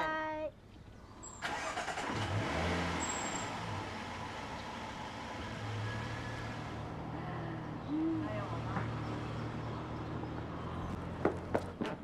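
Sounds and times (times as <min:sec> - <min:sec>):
road noise rushing: 0:01.4 - 0:12.0.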